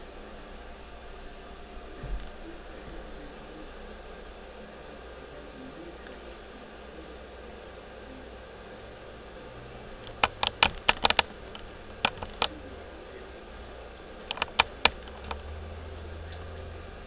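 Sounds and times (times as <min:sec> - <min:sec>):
low steady hum: 0:00.0 - 0:17.0
sharp clicks in clusters: 0:10.0 - 0:12.6, 0:14.3 - 0:15.5.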